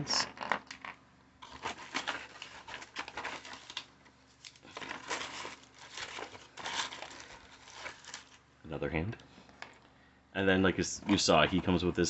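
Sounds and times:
plastic crinkling and rustling: 0.2s - 8.5s, 9.3s - 9.9s.

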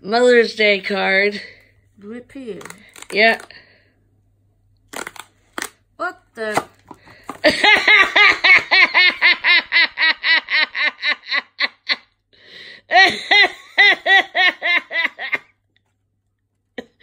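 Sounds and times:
person laughing hard: 7.4s - 12.1s, 12.9s - 15.5s.

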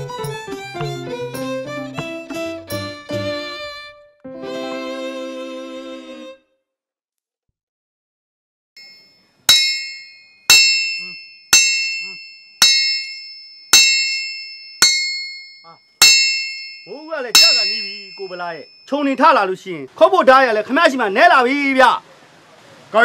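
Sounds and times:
hammer striking metal: 8.8s - 19.0s.

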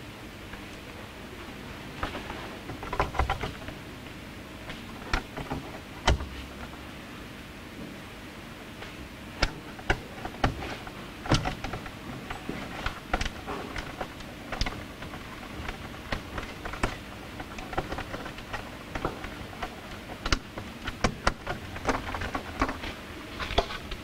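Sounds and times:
cables and plastic connectors clicking: 2.0s - 3.8s, 4.6s - 6.8s, 9.4s - 24.0s.

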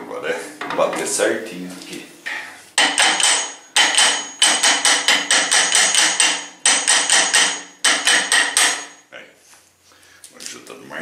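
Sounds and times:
hammer tapping metal: 2.3s - 9.1s.

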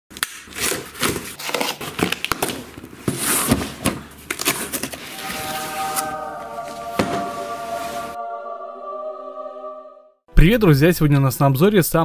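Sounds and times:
cardboard box scraping and rustling: 3.0s - 6.1s.

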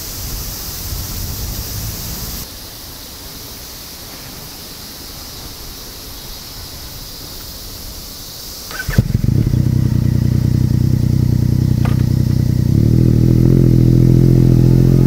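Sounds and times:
steady outdoor hiss: 0.0s - 15.0s
low rumble: 9.1s - 15.0s.

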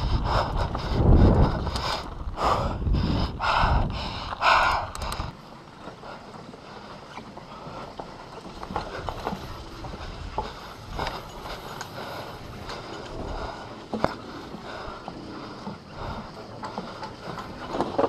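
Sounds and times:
wind on microphone: 0.0s - 5.4s
bike tyres rumbling over dirt: 7.4s - 18.0s.

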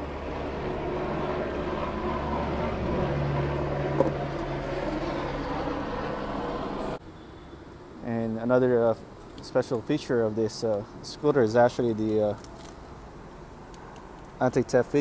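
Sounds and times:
vehicle engine drone: 0.0s - 8.8s.

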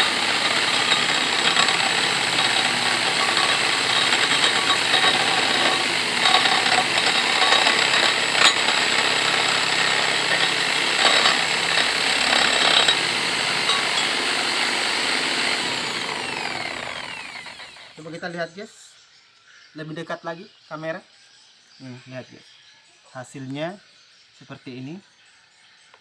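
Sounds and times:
wood scraping against cutting edge: 0.0s - 17.8s
electric hand drill running: 0.0s - 18.1s.

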